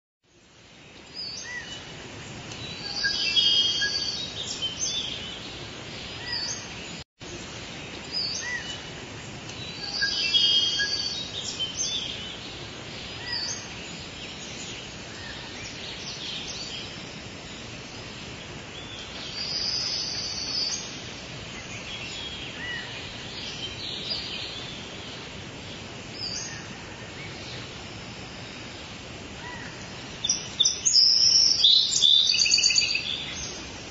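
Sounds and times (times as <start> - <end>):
outdoor background hiss: 0.2 - 33.9.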